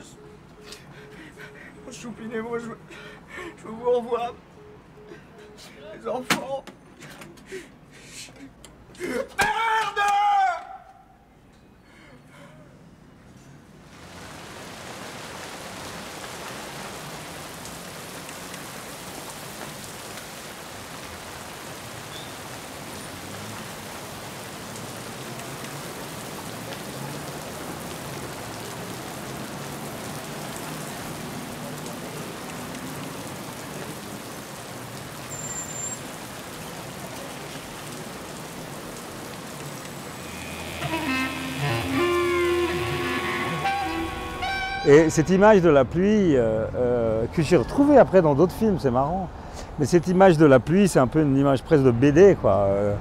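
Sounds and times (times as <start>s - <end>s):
rain pouring and splashing: 13.7s - 53.0s.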